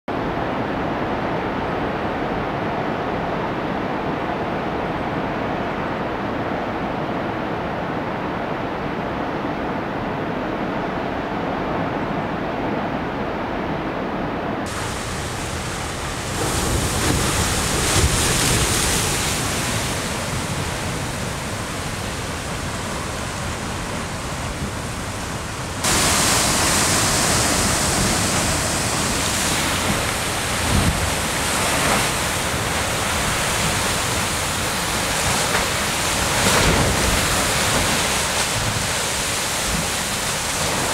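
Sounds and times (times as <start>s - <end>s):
waves splashing on rocks: 14.7s - 40.9s.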